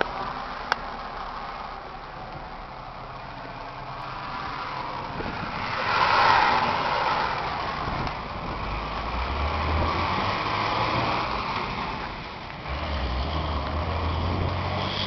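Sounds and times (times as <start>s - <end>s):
tractor diesel engine idling: 0.0s - 5.8s
rushing noise: 0.0s - 15.0s.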